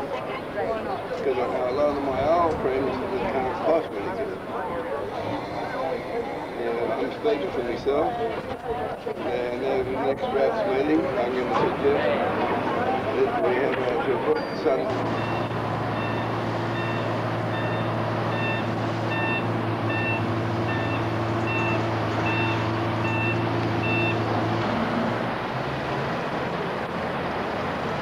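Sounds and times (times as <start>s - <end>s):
crane engine running: 11.1s - 28.0s
reversing alarm beeping: 14.4s - 24.3s.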